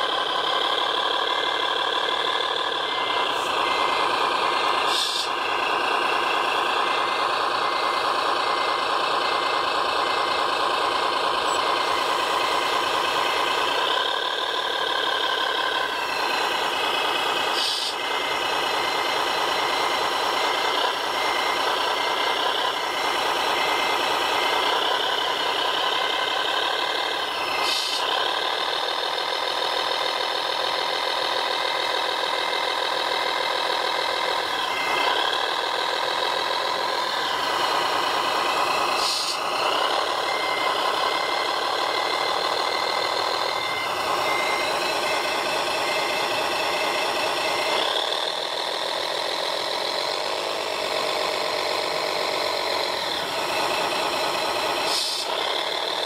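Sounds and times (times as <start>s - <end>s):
model vehicle engine running: 0.0s - 56.0s
high beep: 43.5s - 47.4s.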